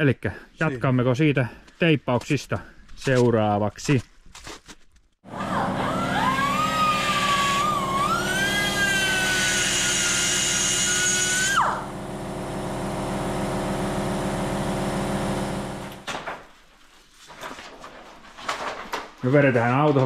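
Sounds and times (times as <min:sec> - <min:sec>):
turbocharger whine rising in pitch: 0:05.3 - 0:16.0.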